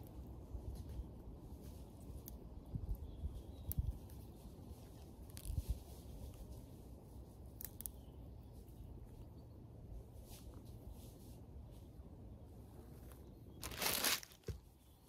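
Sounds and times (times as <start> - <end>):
leaves and stems rustling: 0.5 - 8.7, 10.0 - 14.9.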